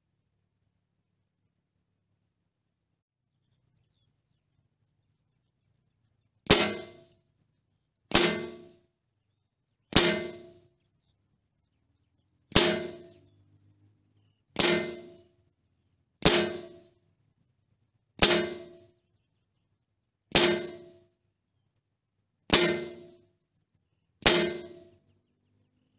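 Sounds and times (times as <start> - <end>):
rifle shots: 6.5 - 7.0, 8.1 - 8.7, 9.9 - 10.6, 12.5 - 13.1, 14.6 - 15.2, 16.2 - 16.8.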